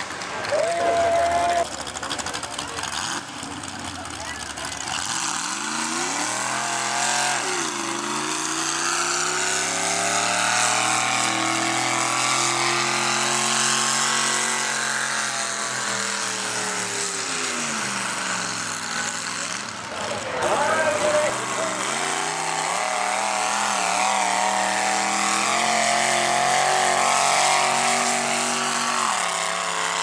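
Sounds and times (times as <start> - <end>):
tractor engine at high revs: 0.0 - 30.0.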